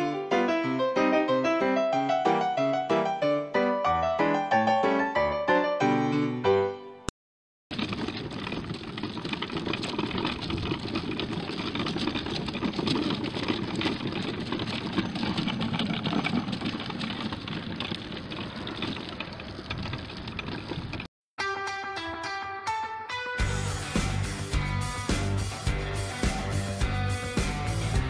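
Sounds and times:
wagon wheels rolling over asphalt: 7.7 - 21.1.

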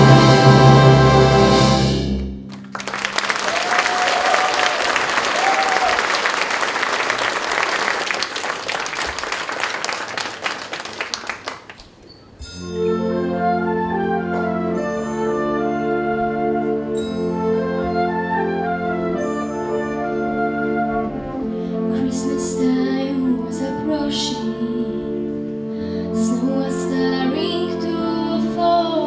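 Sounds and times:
wind band playing: 0.0 - 9.6, 12.6 - 29.0
audience applauding: 2.5 - 12.0.

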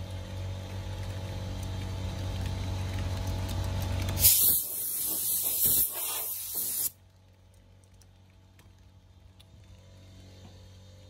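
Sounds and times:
pressure washer water spray: 4.2 - 7.0.

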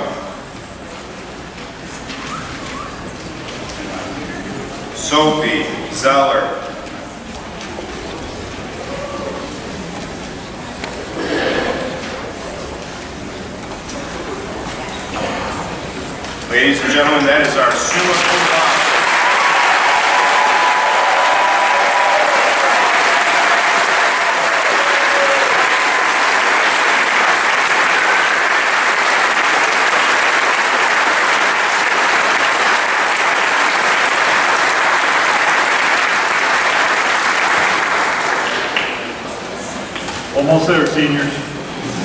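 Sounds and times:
audience applauding: 17.5 - 39.3.

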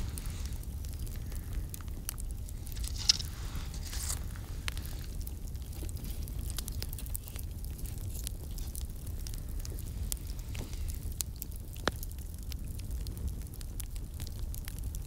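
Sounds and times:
steady low rumble: 0.0 - 11.4
sharp snaps and pops: 0.0 - 13.4
wood fire crackling: 0.0 - 15.0.

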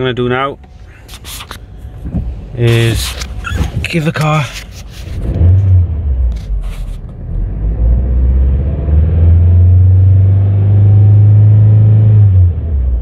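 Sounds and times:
car engine revving: 5.0 - 13.0.

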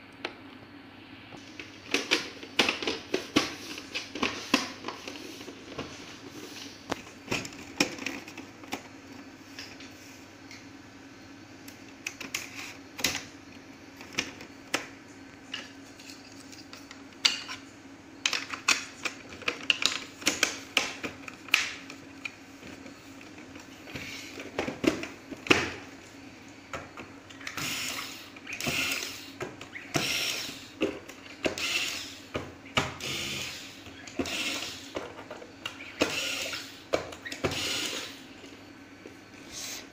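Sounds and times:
electric screwdriver running: 27.5 - 29.2, 30.0 - 30.6, 31.5 - 32.2, 33.0 - 34.9, 36.0 - 36.7, 37.4 - 38.1.

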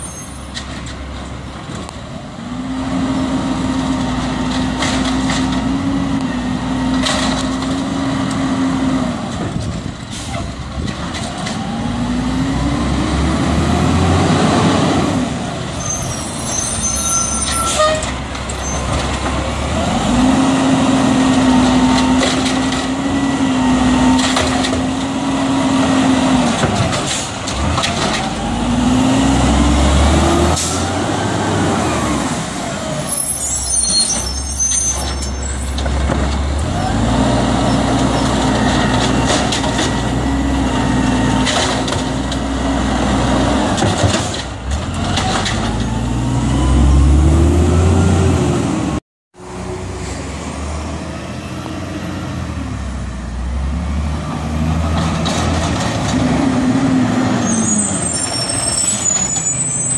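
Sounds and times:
garbage truck diesel engine: 0.0 - 59.9
air brakes hissing: 10.1 - 10.5.

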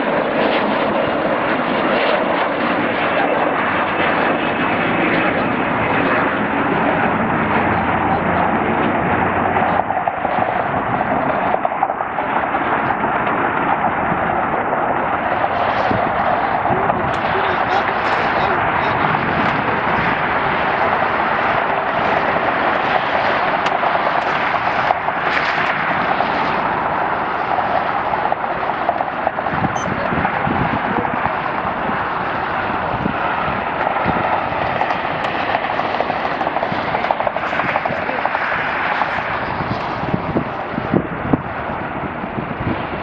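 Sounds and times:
jet engines running: 0.0 - 43.0.

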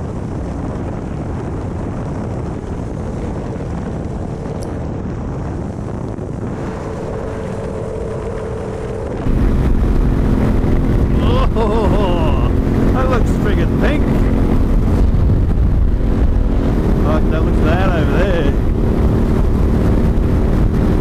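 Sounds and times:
motorcycle engine running: 0.0 - 21.0
road rumble: 0.0 - 21.0
wind rushing: 0.0 - 21.0.

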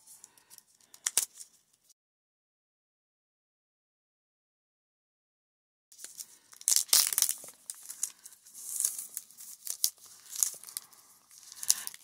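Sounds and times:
plastic wrapping crinkling: 6.0 - 12.0.

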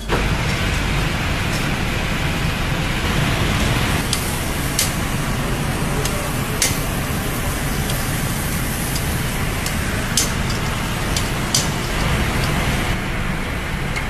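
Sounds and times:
grill rushing noise: 0.0 - 14.0.

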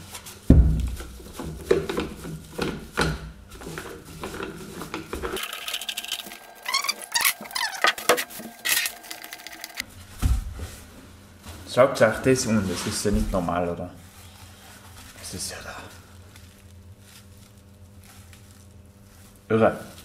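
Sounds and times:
knocks clatter and scraping: 1.3 - 9.8
short rising squeaks: 5.4 - 9.8.

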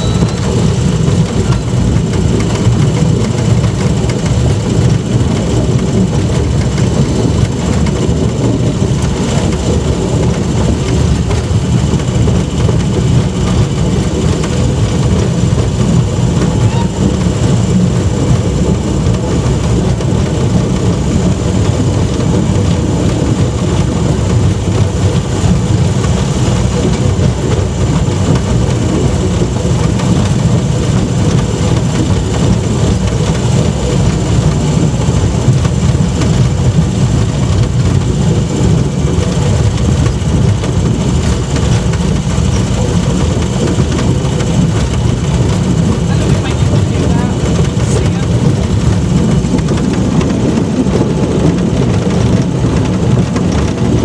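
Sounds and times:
vehicle engine running: 0.0 - 54.0.

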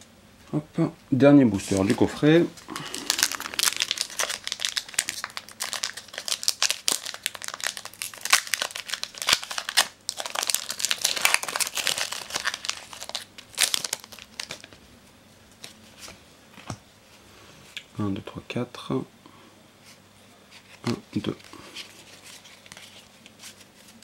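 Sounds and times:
foil wrapper crinkling and tearing: 1.7 - 14.8.

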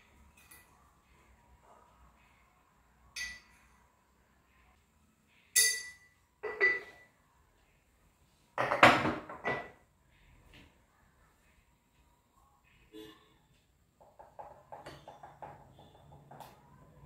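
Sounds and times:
kitchenware clinking and knocking: 3.2 - 3.7, 5.6 - 7.1, 8.6 - 9.8, 14.0 - 16.6.

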